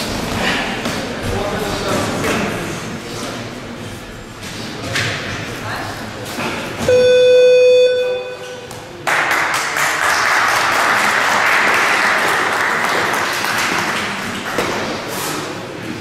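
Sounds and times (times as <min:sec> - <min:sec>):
applause: 0:09.0 - 0:14.8.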